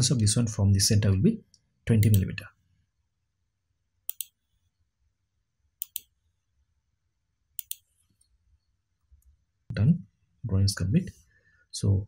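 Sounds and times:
mouse buttons clicking: 0:02.0 - 0:02.3, 0:04.1 - 0:04.4, 0:05.8 - 0:06.2, 0:07.6 - 0:08.3.

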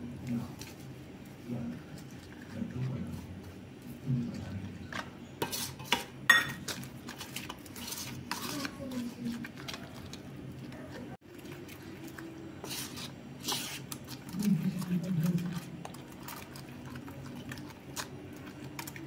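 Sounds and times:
spoon scraping metal bowl: 0:05.4 - 0:10.2, 0:11.5 - 0:19.0.

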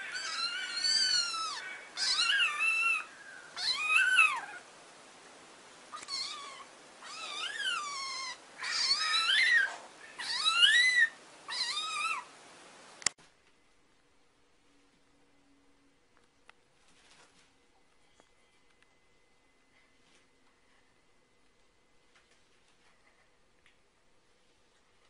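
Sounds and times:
kitten meowing: 0:00.1 - 0:04.6, 0:05.9 - 0:12.3.

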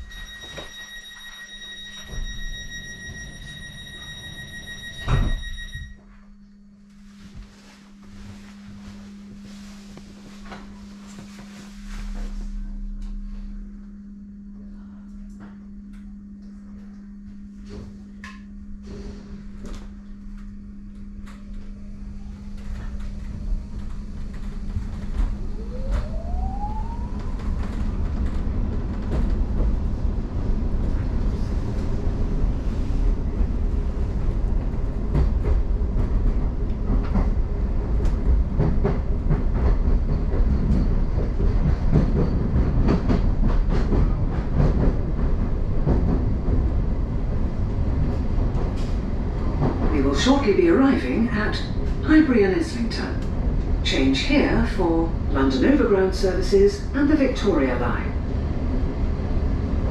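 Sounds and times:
train interior hum: 0:00.0 - 0:59.9
wheels rumbling on rail: 0:18.8 - 0:59.9.

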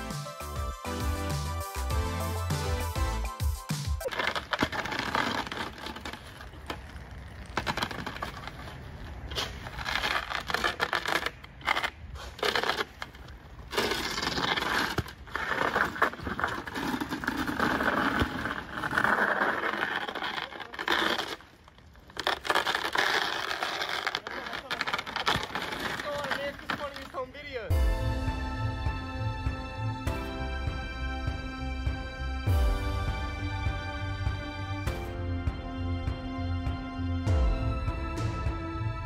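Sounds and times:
bookshelf scraping across icy snow: 0:13.6 - 0:27.4.

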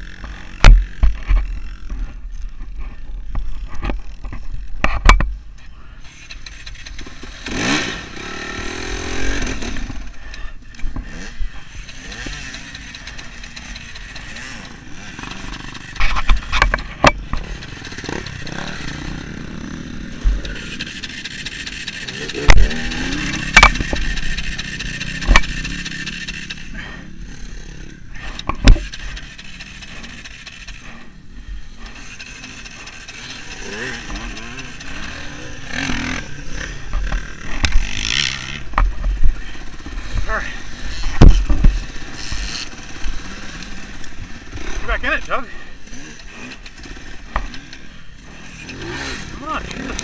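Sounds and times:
dirt bike engine running: 0:00.0 - 0:50.0
dirt bike knocks and scrapes: 0:00.1 - 0:05.4, 0:10.9 - 0:19.4, 0:20.2 - 0:26.6, 0:28.2 - 0:30.8, 0:32.0 - 0:43.5.

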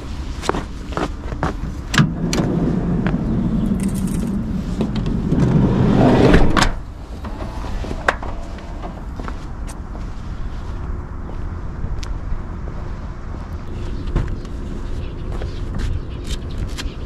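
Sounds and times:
van sliding door rolling: 0:02.0 - 0:09.6
footsteps on dry grass: 0:08.5 - 0:16.2.

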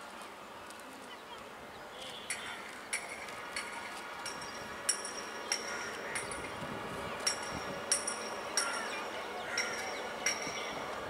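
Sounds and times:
metal striking metal clinks: 0:03.0 - 0:06.6, 0:07.2 - 0:09.0, 0:09.6 - 0:10.8.

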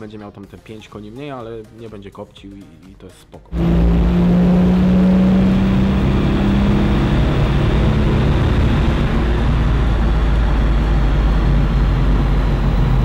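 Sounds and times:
diesel engine on dynamometer: 0:03.5 - 0:13.0
humming tone: 0:03.5 - 0:13.0.

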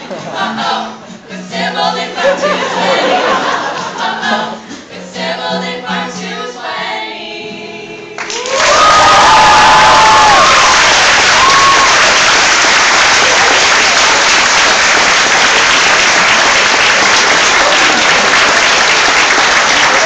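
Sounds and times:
audience applauding: 0:08.2 - 0:20.0.

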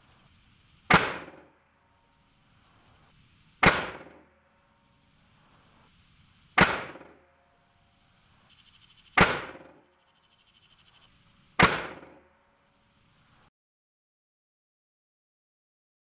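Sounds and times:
air rifle shots: 0:00.8 - 0:01.6, 0:03.6 - 0:04.6, 0:06.5 - 0:07.5, 0:09.1 - 0:09.9, 0:11.6 - 0:12.4.

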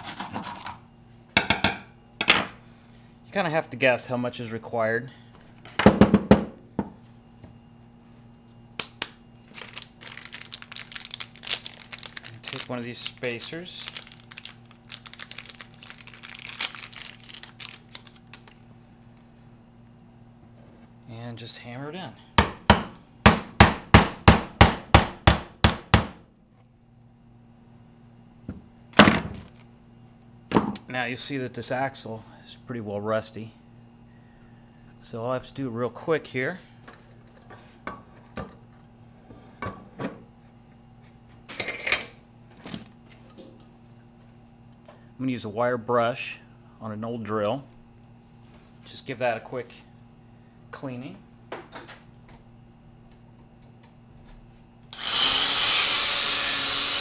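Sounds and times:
plastic packaging crinkling: 0:09.5 - 0:18.6.

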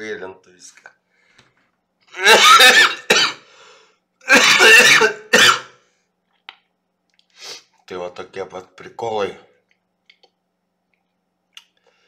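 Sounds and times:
man coughing: 0:02.1 - 0:03.5, 0:04.2 - 0:05.8.

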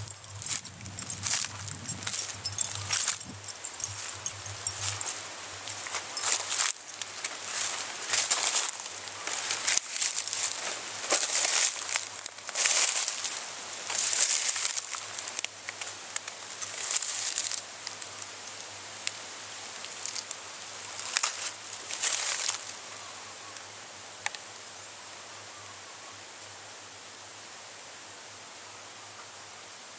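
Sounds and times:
footsteps crunching through dry leaves: 0:00.0 - 0:18.2, 0:20.8 - 0:22.8
faint steady hiss: 0:00.0 - 0:29.9.

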